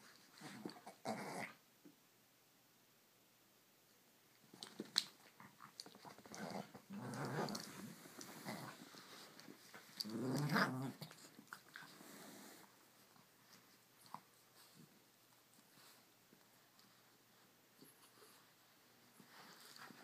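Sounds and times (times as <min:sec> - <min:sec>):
small dogs play-growling: 0:00.3 - 0:01.6, 0:04.7 - 0:12.7.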